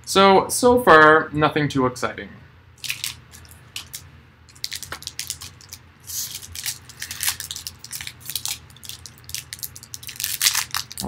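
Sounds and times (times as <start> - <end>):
foil wrapper crinkling: 2.8 - 11.0
wrapper tearing rasp: 2.8 - 11.0.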